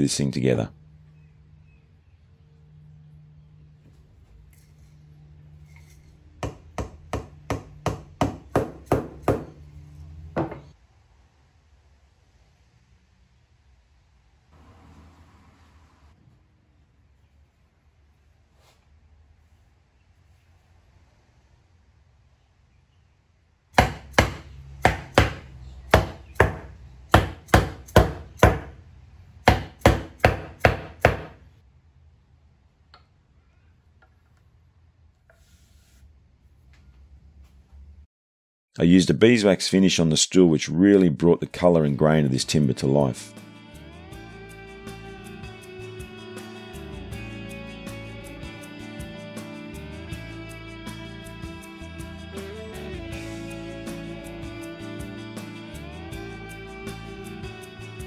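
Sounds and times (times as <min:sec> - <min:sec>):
wooden mallet knocking wood: 0:06.4 - 0:09.6, 0:10.4 - 0:10.7, 0:23.8 - 0:28.8, 0:29.5 - 0:31.4.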